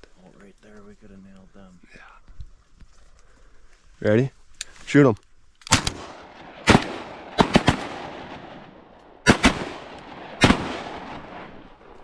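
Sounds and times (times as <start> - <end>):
shotguns firing with echo: 5.7 - 11.9.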